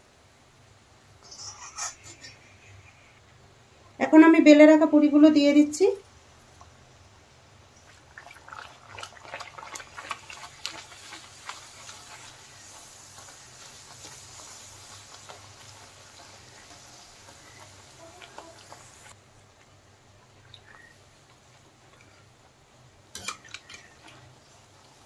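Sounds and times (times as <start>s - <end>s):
dough sizzling in hot oil: 6.0s - 25.0s.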